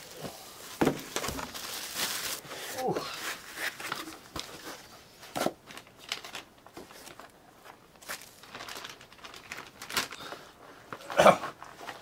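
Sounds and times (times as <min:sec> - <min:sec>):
plastic packaging crinkling: 0:00.0 - 0:02.4, 0:03.2 - 0:12.0.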